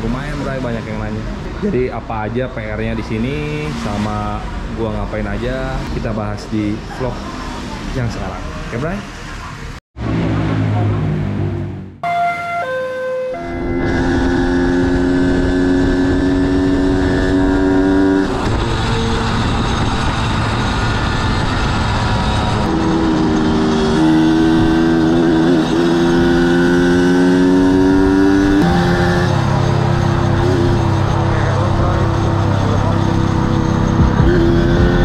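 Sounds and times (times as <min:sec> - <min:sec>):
motorcycle engine accelerating: 0:13.4 - 0:35.0
wind on microphone: 0:13.9 - 0:25.7.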